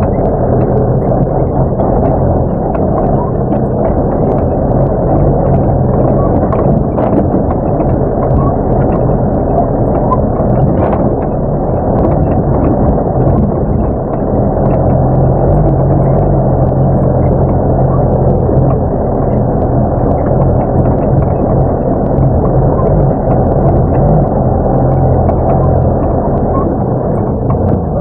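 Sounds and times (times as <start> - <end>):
knocks and rattles: 0.0 - 28.0
truck engine running: 0.0 - 28.0.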